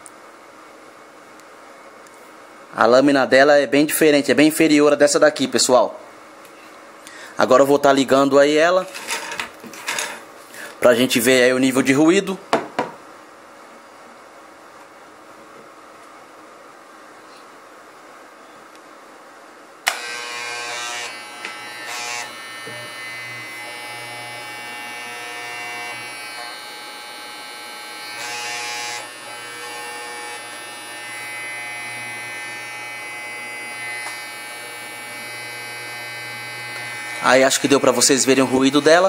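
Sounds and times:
electric hair clipper buzzing: 0:19.8 - 0:39.0
hair clipper switch click: 0:19.9 - 0:20.1, 0:34.0 - 0:34.2.

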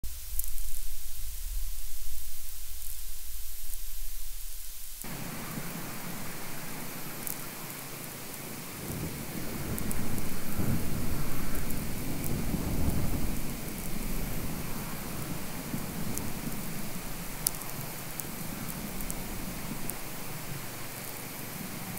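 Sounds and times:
low electrical hum: 0:00.0 - 0:21.9
wind buffeting microphone: 0:00.1 - 0:21.9
faint high clicks: 0:17.4 - 0:19.2.

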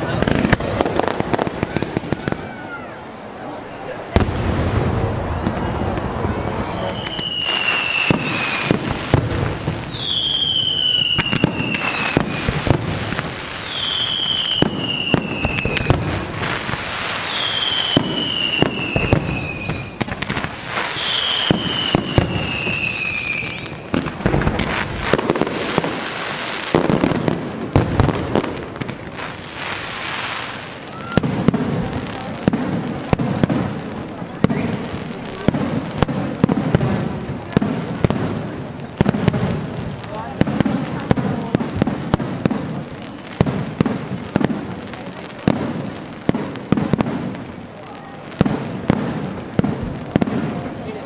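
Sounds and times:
fireworks bangs and crackles: 0:00.0 - 0:51.0
falling firework whistles: 0:04.2 - 0:27.1, 0:29.2 - 0:31.6, 0:34.4 - 0:36.1.

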